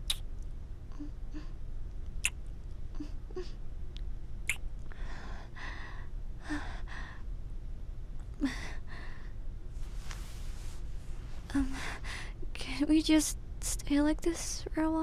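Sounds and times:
wet kiss lip smacks: 0.0s - 0.3s, 2.2s - 2.4s.

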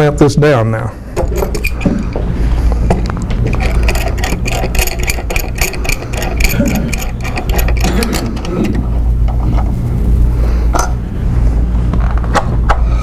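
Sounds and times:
steady low hum: 0.0s - 13.0s
clamp screw clicking: 1.2s - 2.2s, 3.4s - 8.8s.

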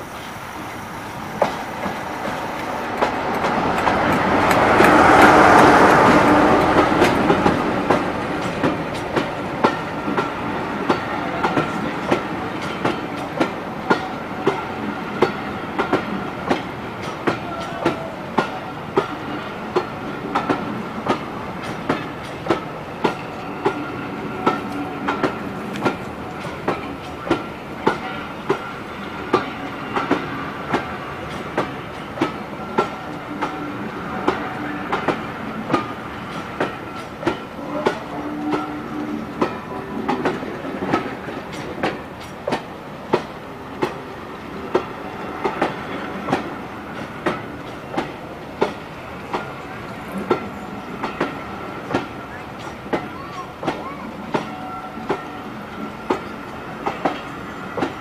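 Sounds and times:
diesel locomotive passing: 0.0s - 58.0s
train rumble: 0.0s - 58.0s
wheels clicking over rail joints: 34.2s - 58.0s.

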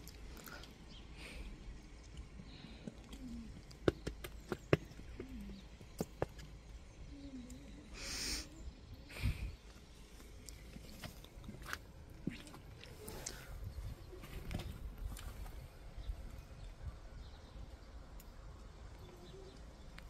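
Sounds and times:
bird cooing: 2.6s - 4.0s, 5.0s - 5.8s, 7.0s - 9.1s, 19.0s - 19.8s.

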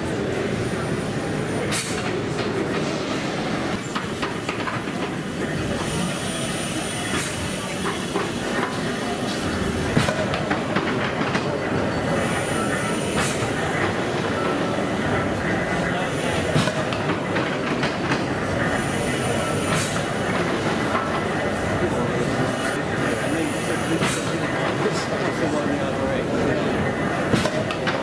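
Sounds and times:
steam engine clanking: 1.6s - 25.5s
steam hissing: 4.9s - 10.3s, 12.1s - 14.0s, 15.8s - 17.4s, 18.6s - 24.7s.

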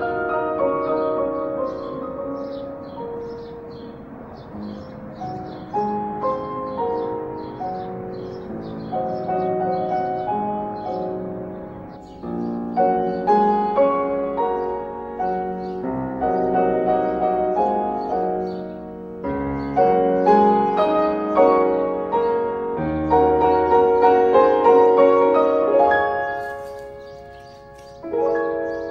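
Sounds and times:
piano music: 0.0s - 28.9s.

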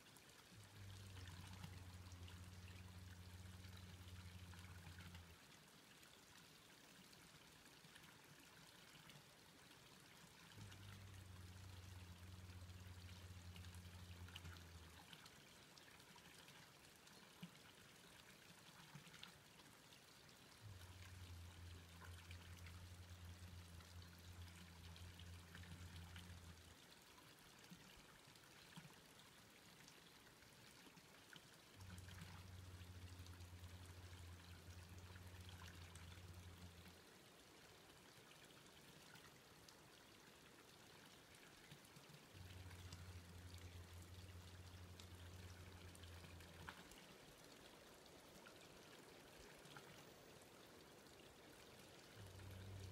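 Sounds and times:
soft hiss: 0.0s - 52.9s
low steady hum: 0.1s - 52.9s.

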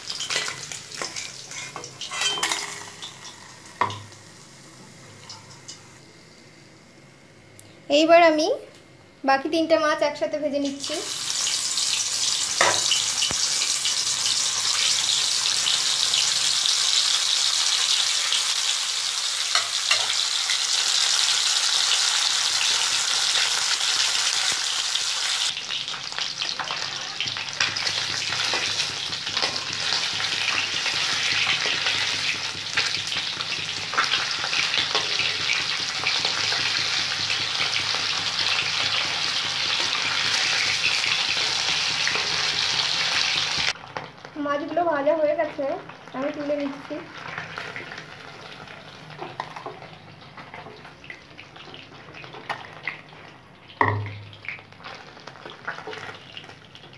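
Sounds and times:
fish sizzling in oil: 0.0s - 6.5s, 10.6s - 56.9s
metal spatula scraping pan: 0.2s - 3.1s.

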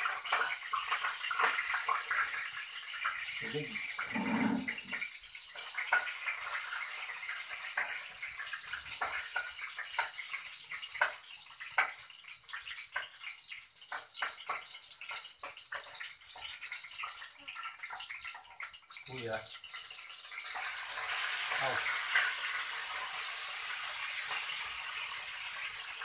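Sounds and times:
liquid hissing in a pan: 0.0s - 26.0s
spatula scraping a pan: 4.0s - 5.0s.

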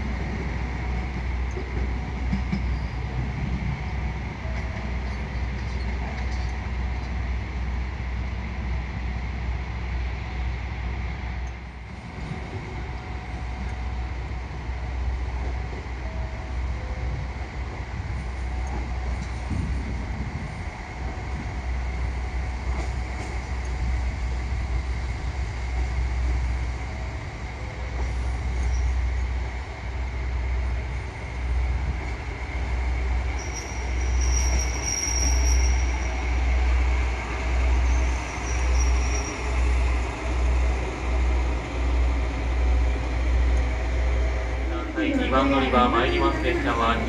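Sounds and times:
train rumbling: 0.0s - 47.0s
high wheel squeal: 33.3s - 36.2s, 37.8s - 39.8s.

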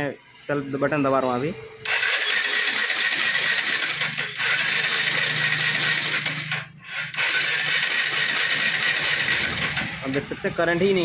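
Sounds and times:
electric starter cranking engine: 1.8s - 10.3s.

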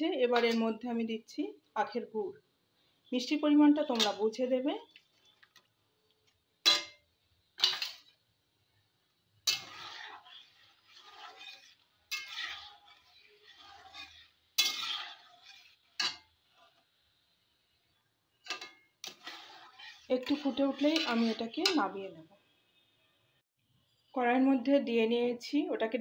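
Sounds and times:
spatula scraping metal pan: 3.7s - 4.5s, 7.6s - 8.2s, 9.4s - 17.0s, 18.4s - 22.0s
metal spatula clanking on pan: 3.8s - 4.3s, 6.6s - 8.2s, 9.4s - 16.4s, 18.4s - 22.0s.

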